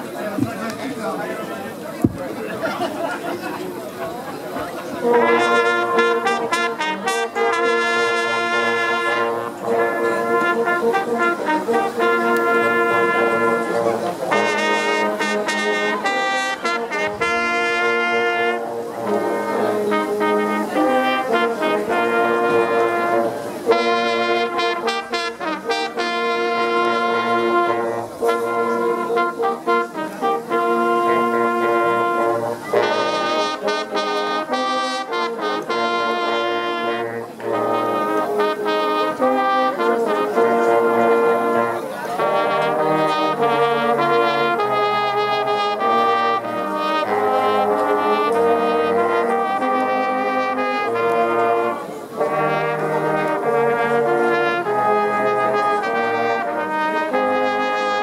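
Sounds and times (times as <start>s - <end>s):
brass band playing slow tune: 0.0s - 58.0s.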